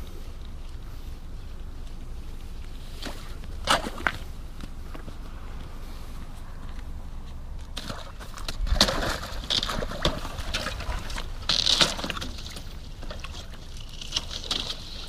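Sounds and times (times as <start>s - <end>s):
water splashing: 3.0s - 4.3s, 7.8s - 15.0s
ice cracking and crunching: 7.7s - 15.0s.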